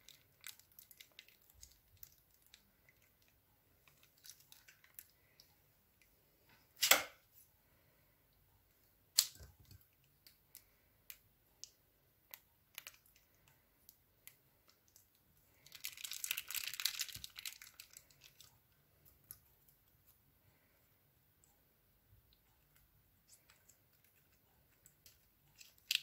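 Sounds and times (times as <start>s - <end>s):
plastic bag crinkling and tearing: 0.0s - 2.5s, 15.6s - 18.5s
scissors snipping plastic: 6.8s - 7.2s.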